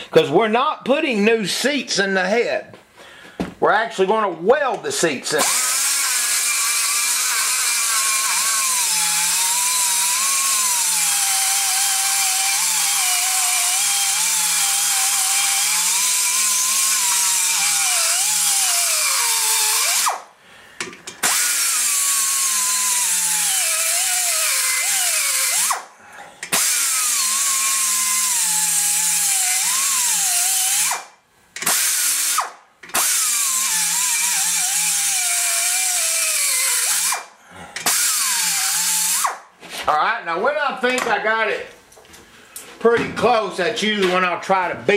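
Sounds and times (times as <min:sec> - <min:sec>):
die grinder whining on metal: 0:05.4 - 0:20.2, 0:21.1 - 0:25.8, 0:26.4 - 0:31.0, 0:31.6 - 0:37.2, 0:37.8 - 0:39.4.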